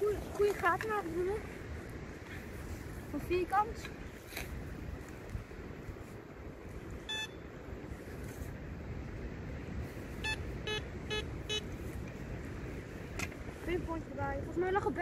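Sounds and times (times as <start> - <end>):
metal detector beeps: 7.0 - 7.5, 10.2 - 11.8.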